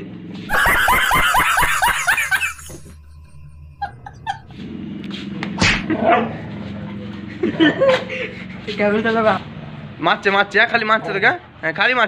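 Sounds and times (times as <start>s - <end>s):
man laughing hard: 0.5s - 4.5s.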